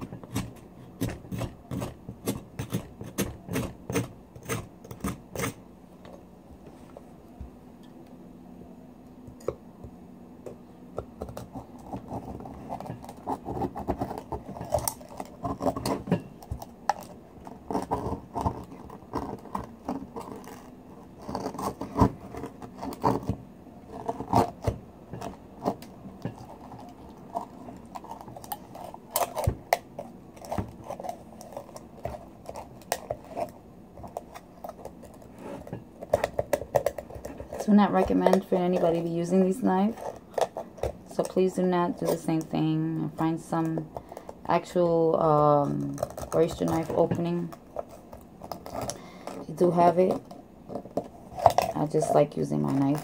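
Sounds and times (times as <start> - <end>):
knife scraping oyster shell: 0.2 - 5.6, 11.3 - 23.3, 45.6 - 53.0.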